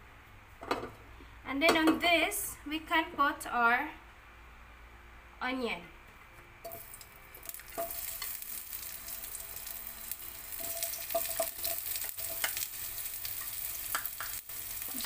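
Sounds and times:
onion sizzling in hot oil: 6.6s - 15.0s.

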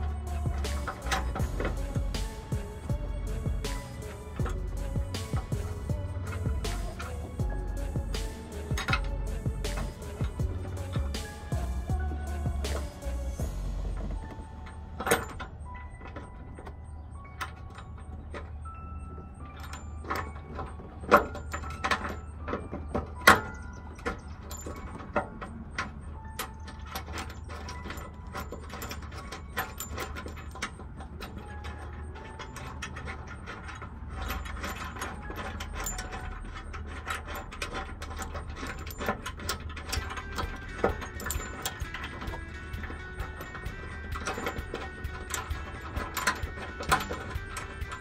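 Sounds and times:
steady low hum: 0.0s - 17.4s
metal knocks: 0.0s - 18.6s, 19.4s - 48.0s
ratchet wrench clicking: 26.4s - 48.0s.

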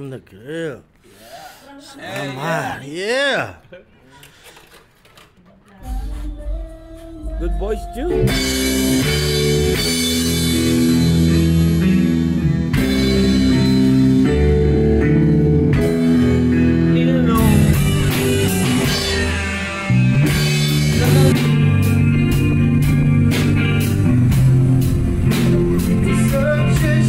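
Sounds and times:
drum kit: 5.7s - 27.0s
guitar chords: 5.8s - 27.0s
keyboard chords: 5.8s - 27.0s.

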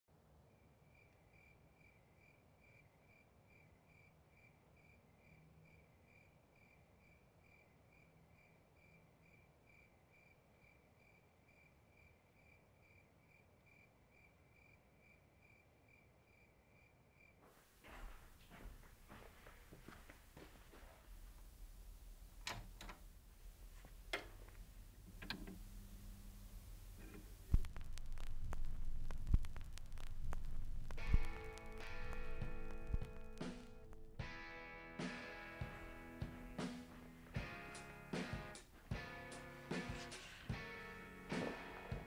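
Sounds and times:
cricket chirping: 0.4s - 17.5s
soft knocks and footsteps: 17.4s - 25.7s, 27.0s - 34.4s, 38.3s - 42.0s
low hiss: 17.4s - 34.4s, 35.0s - 42.0s.

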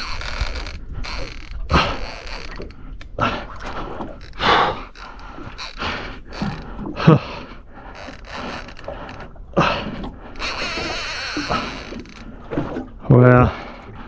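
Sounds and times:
fishing reel ratcheting: 0.0s - 2.7s, 4.2s - 6.6s, 10.4s - 12.2s.

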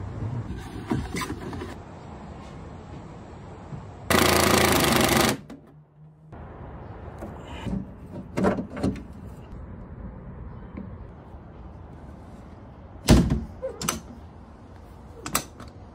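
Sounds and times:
power tool hammering rattle: 4.1s - 5.5s.

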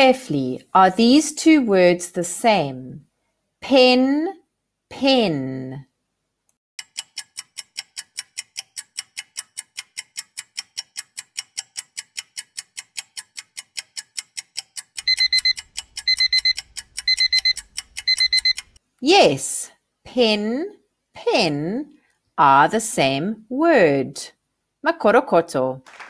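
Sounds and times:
clock ticking: 6.8s - 18.8s
digital alarm beeps: 15.0s - 18.6s.

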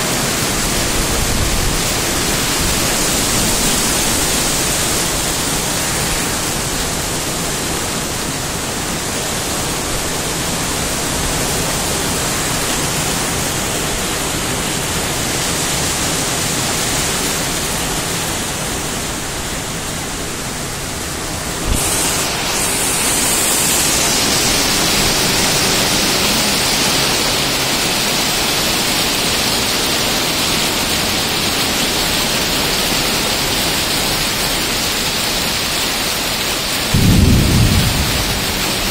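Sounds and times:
steady rain pouring: 0.0s - 38.9s
sharp thunder crack: 21.5s - 27.6s, 36.9s - 38.9s.

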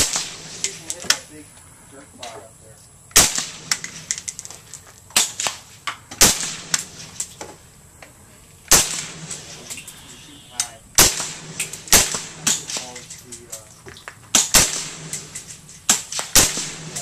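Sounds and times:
suppressed gunshots: 0.0s - 1.2s, 3.1s - 4.5s, 5.1s - 7.4s, 8.7s - 10.1s, 10.9s - 13.2s, 14.3s - 17.0s.

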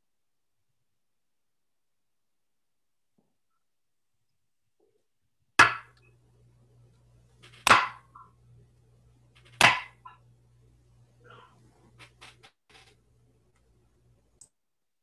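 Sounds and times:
faint low hum: 5.9s - 14.5s.

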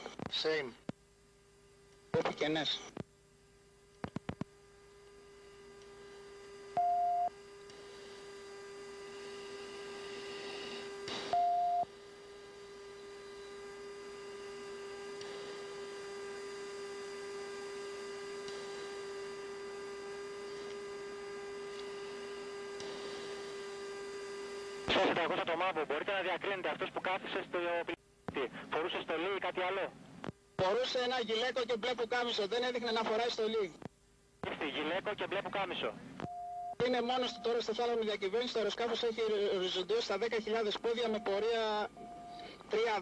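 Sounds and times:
short high-pitched beeps: 6.8s - 7.3s, 11.3s - 11.9s, 36.3s - 37.6s, 41.0s - 42.5s
steady electronic tone: 40.8s - 43.0s.

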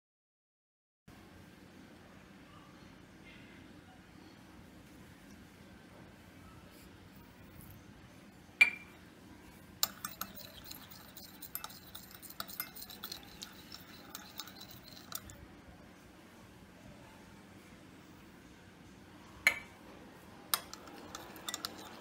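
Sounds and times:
spoon stirring in glass jug: 9.7s - 15.5s, 20.5s - 22.0s
metal clinking on glass: 9.8s - 15.3s, 20.6s - 22.0s.

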